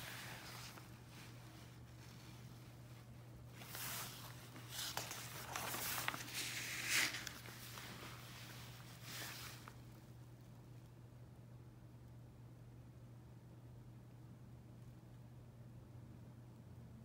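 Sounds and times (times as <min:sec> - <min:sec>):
book pages turning: 0:00.0 - 0:02.8, 0:03.4 - 0:09.8.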